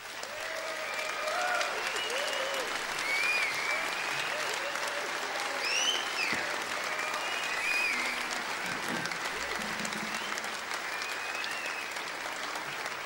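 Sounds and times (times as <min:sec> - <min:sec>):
audience applauding: 0:00.0 - 0:13.0
whistles: 0:01.8 - 0:12.1.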